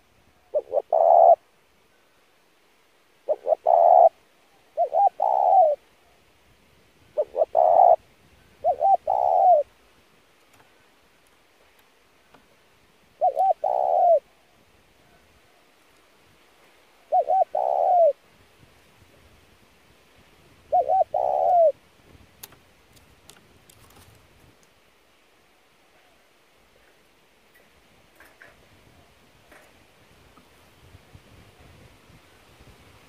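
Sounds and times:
dove cooing: 0.4s - 1.4s, 3.2s - 5.8s, 7.2s - 8.0s, 8.6s - 9.7s, 13.2s - 14.4s, 17.0s - 18.2s, 20.7s - 21.8s.

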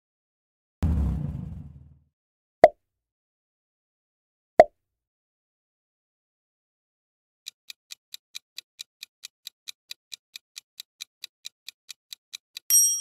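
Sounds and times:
bell-like ding: 12.7s - 13.0s.

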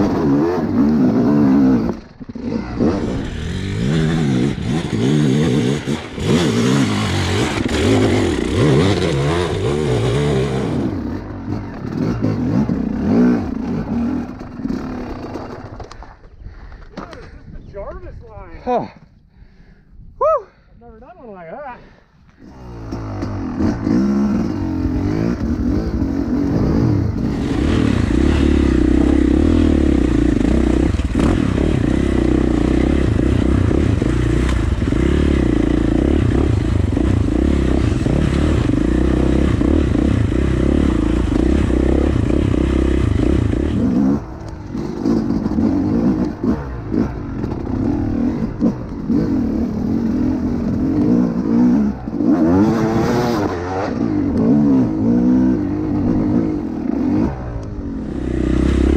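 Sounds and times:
dirt bike engine revving: 0.0s - 15.7s, 22.4s - 58.9s
clatter and scraping over rocks: 13.6s - 18.0s.

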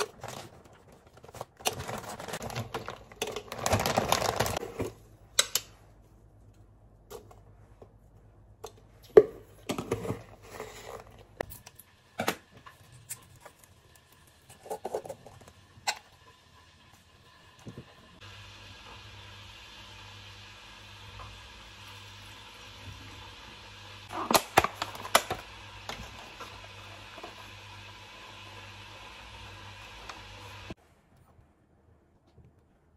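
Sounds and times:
plastic bag crinkling: 0.0s - 4.6s.

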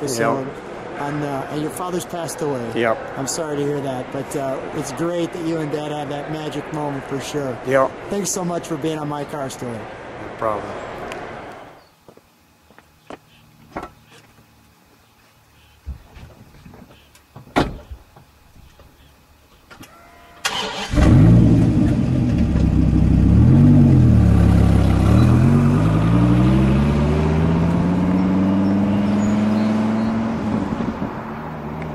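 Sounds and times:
car engine starting and revving: 20.4s - 31.9s.

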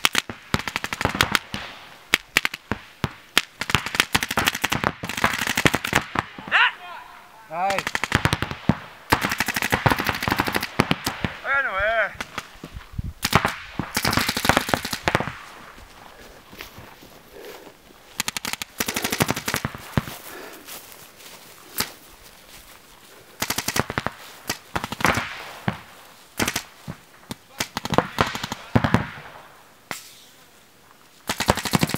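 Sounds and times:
paintball markers rapid firing: 3.4s - 6.3s, 7.7s - 11.3s, 13.2s - 15.4s, 18.2s - 20.0s, 23.4s - 25.3s, 26.4s - 26.7s, 31.3s - 31.9s
person shouting: 6.4s - 7.8s.

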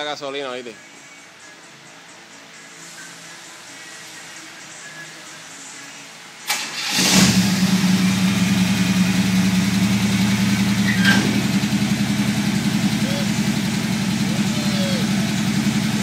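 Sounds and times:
car engine starting and idling: 6.4s - 16.0s.

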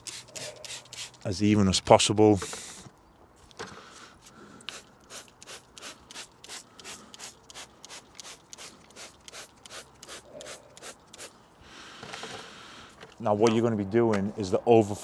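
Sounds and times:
spray bottle squirting: 0.0s - 1.3s, 4.6s - 11.3s.

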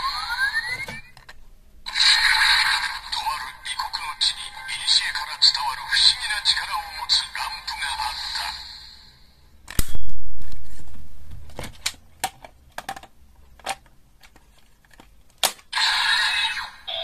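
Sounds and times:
toy electronic sound: 0.0s - 1.1s, 15.8s - 17.0s
plastic toy clicks and snaps: 11.8s - 15.7s.

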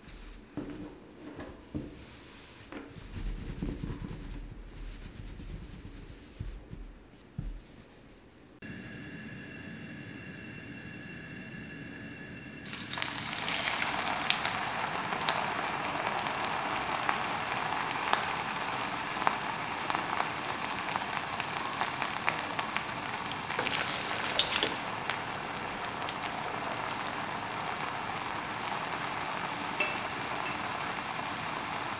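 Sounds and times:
food sizzling in hot oil: 8.6s - 31.9s.

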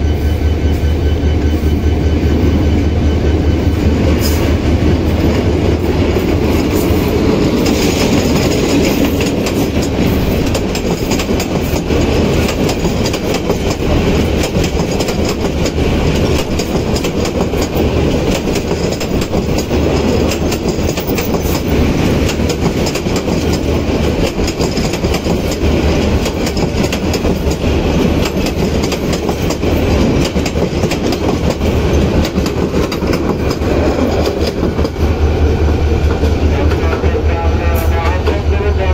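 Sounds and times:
train coaches rumbling past: 0.0s - 38.9s
wheels clicking over rail joints: 6.1s - 35.0s.

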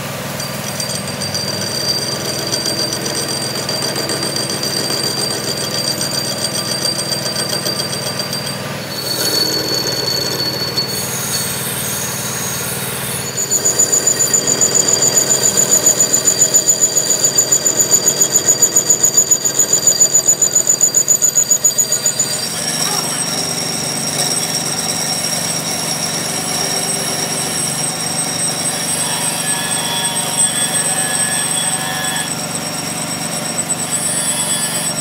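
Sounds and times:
metal lathe running: 0.1s - 35.0s
lathe tool bit squealing: 0.3s - 35.0s.

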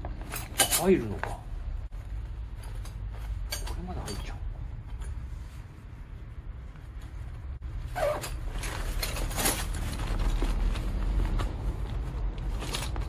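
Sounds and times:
nylon bag rustling: 7.7s - 13.0s.

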